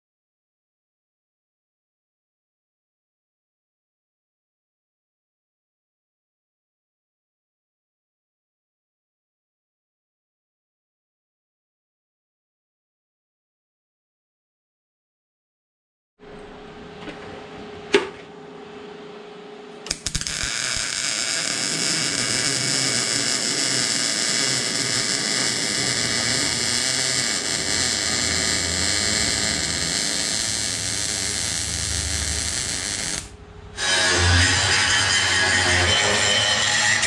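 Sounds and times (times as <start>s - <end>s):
low hum: 16.2s - 37.0s
welding arc buzzing: 19.8s - 37.0s
angle grinder grinding metal: 19.9s - 37.0s.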